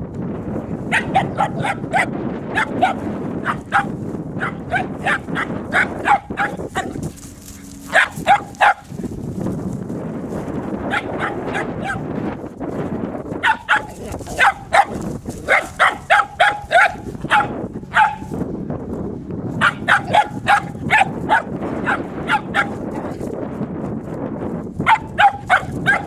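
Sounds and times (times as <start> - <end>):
puppy barking high: 0.8 - 9.0, 10.8 - 12.1, 13.4 - 18.4, 19.6 - 23.2, 24.8 - 26.0.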